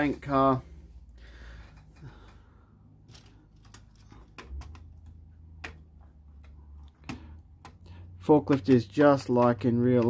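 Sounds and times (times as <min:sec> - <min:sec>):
plastic clicks and taps: 0:08.4 - 0:10.0.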